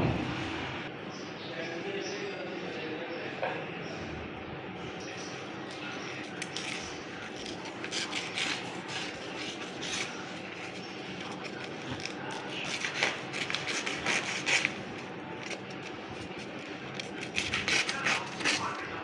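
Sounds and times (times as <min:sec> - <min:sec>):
steady low hum: 0:00.0 - 0:19.0
knife slicing paper: 0:06.3 - 0:19.0
paper rustling and crinkling: 0:06.3 - 0:19.0.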